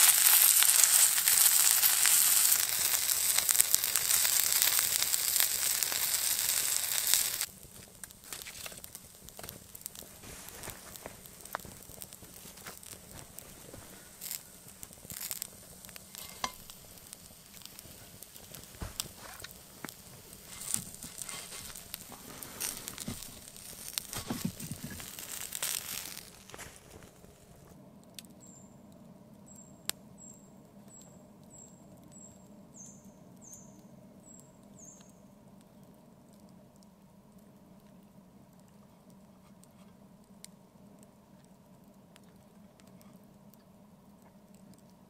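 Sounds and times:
fish sizzling in a pan: 0:00.0 - 0:27.7
campfire crackling and popping: 0:00.0 - 0:45.0.

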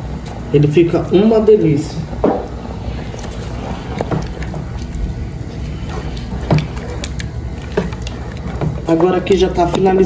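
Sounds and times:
low hum: 0:00.0 - 0:10.0
broth sloshing in pot: 0:02.0 - 0:10.0.

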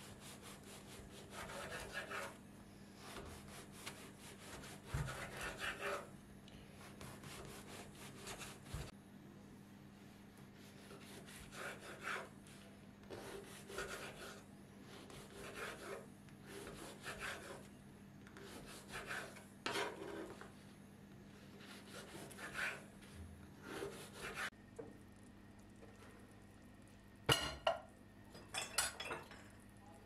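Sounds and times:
knife sawing through crusty bread: 0:00.0 - 0:02.4, 0:03.0 - 0:06.1, 0:10.6 - 0:12.3, 0:13.1 - 0:17.7, 0:18.4 - 0:20.4, 0:21.5 - 0:22.9, 0:23.6 - 0:24.5.

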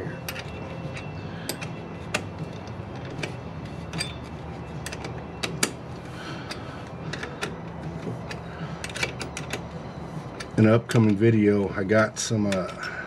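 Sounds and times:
steady low hum: 0:00.0 - 0:13.0
wrench clicking on metal bolt: 0:00.2 - 0:05.8.

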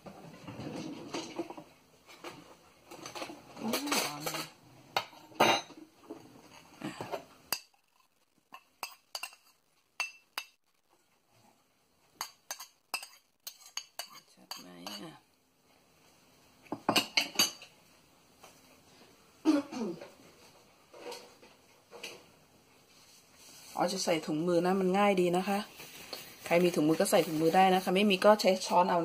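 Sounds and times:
metal spoon scraping ceramic bowl: 0:08.6 - 0:10.6, 0:12.2 - 0:15.1.

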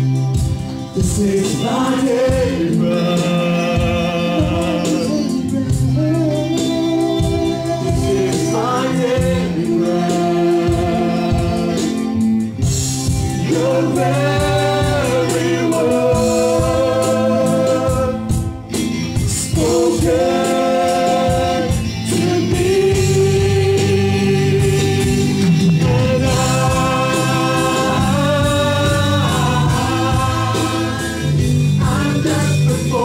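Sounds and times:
bass guitar: 0:00.0 - 0:33.0
electric guitar: 0:00.0 - 0:33.0
keyboard: 0:00.0 - 0:33.0
voices singing together: 0:00.9 - 0:12.6, 0:13.2 - 0:33.0.

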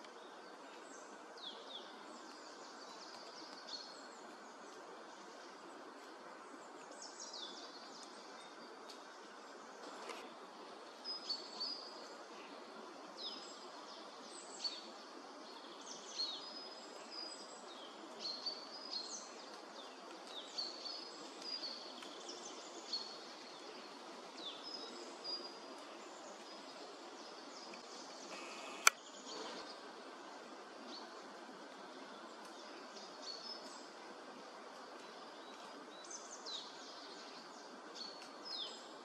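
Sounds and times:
background hiss: 0:00.0 - 0:39.0
songbirds chirping: 0:00.0 - 0:39.0
sharp click: 0:28.3 - 0:29.0.

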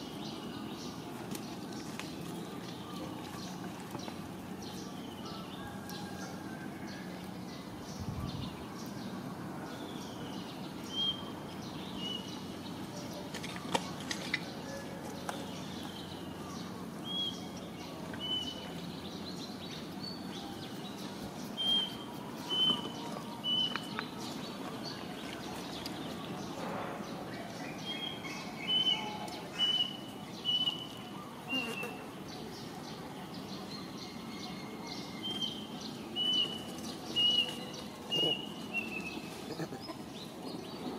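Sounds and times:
low outdoor hum: 0:00.0 - 0:40.9
bird chirping: 0:09.8 - 0:40.9.

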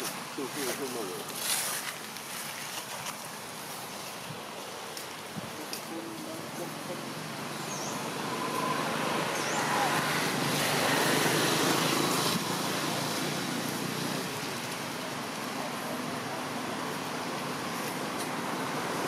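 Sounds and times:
outdoor rushing noise: 0:07.0 - 0:19.0.

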